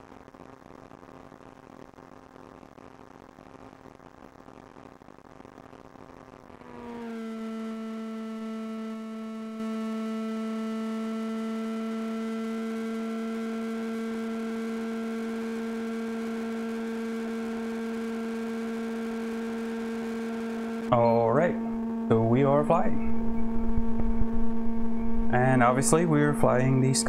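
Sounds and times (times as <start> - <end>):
electric motor and propeller droning: 6.5 - 27.0.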